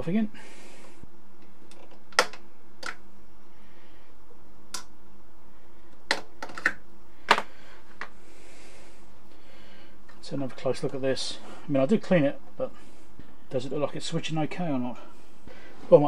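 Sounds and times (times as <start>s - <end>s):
plastic clicks and snaps: 1.4s - 3.0s, 4.7s - 4.9s.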